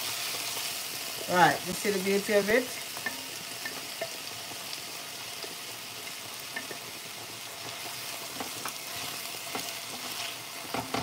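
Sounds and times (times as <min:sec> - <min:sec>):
vegetables sizzling in hot oil: 0:00.0 - 0:11.0
spatula tapping and scraping pot: 0:03.0 - 0:04.2, 0:06.5 - 0:06.9, 0:07.6 - 0:11.0.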